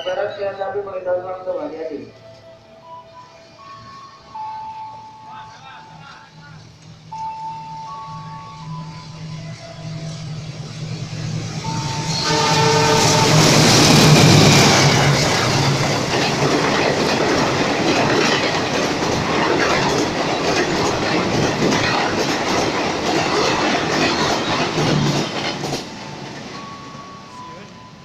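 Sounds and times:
locomotive engine hum: 2.1s - 28.0s
train wheels clattering over rails: 10.4s - 26.8s.

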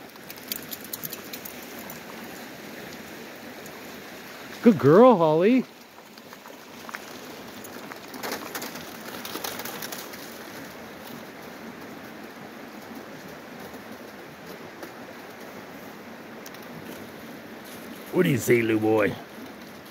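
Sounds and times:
paws crunching on ice and gravel: 5.8s - 11.4s.

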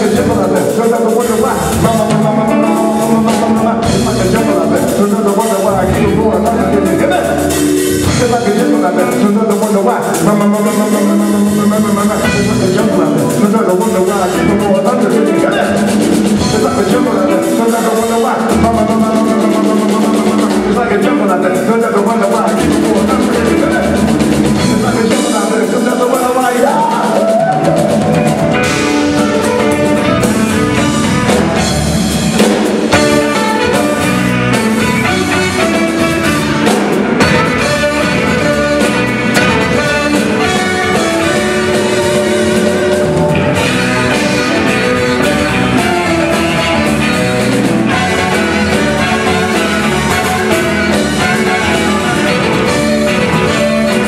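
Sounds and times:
drum kit: 0.0s - 54.0s
electric bass: 0.0s - 54.0s
keyboard: 0.0s - 54.0s
saxophones playing: 22.4s - 54.0s.

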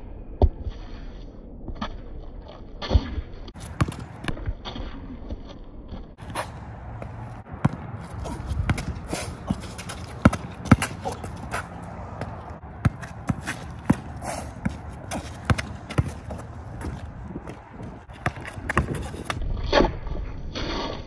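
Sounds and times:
basketball bouncing on concrete: 2.8s - 20.0s
sneaker steps and scuffs: 5.9s - 19.4s.

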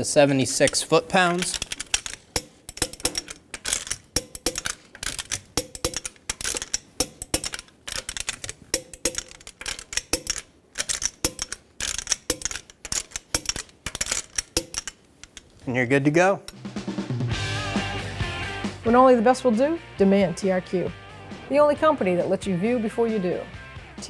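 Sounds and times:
torque wrench ratcheting: 0.6s - 15.5s.

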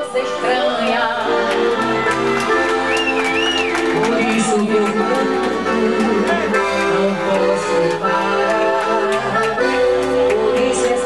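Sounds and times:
accordion chords: 0.0s - 11.0s
person singing: 3.9s - 11.0s.

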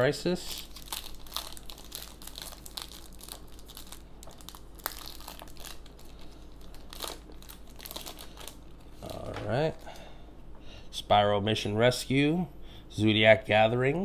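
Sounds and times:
foil wrapper crinkling and tearing: 0.4s - 9.8s.

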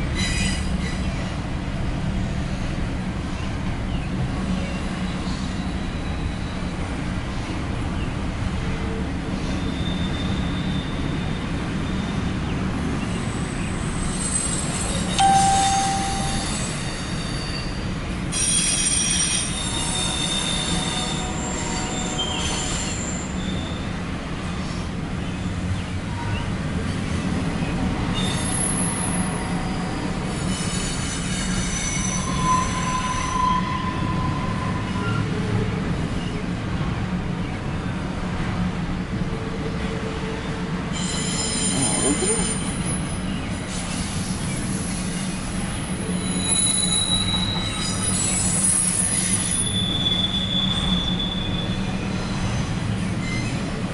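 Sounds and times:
train wheels squealing: 0.0s - 1.5s, 4.4s - 7.5s, 9.3s - 24.8s, 28.0s - 36.3s, 40.2s - 53.9s
freight train rumbling: 0.0s - 53.9s.

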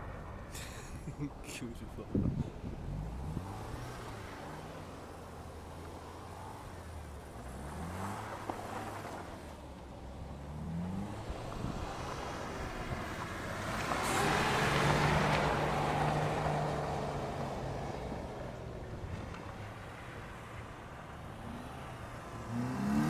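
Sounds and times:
tyres spinning on snow: 2.8s - 23.0s
car engine revving: 10.2s - 23.0s.

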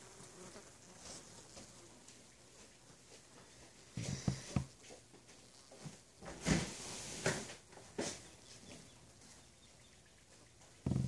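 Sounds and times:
honeybees humming: 0.0s - 11.0s
bumps and rustles: 3.0s - 9.4s, 10.6s - 11.0s.

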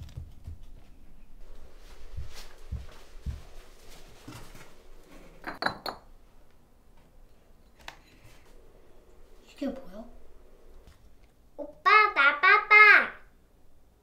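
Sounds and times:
glass bottles clinking: 5.4s - 6.1s.

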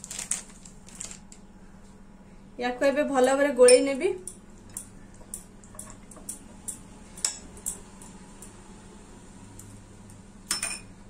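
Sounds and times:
low steady hum: 0.0s - 11.0s
spoon clinking against glass bowl: 10.5s - 10.9s.

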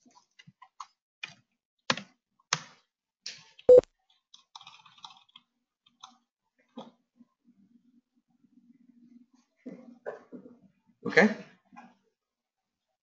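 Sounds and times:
keyboard and mouse clicks: 0.0s - 6.2s.

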